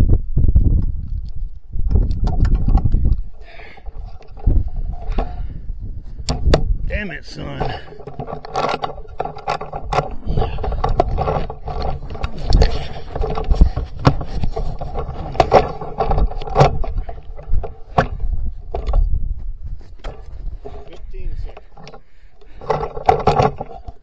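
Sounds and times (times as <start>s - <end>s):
rifle handling scrapes and clicks: 7.4s - 19.1s, 19.7s - 24.0s.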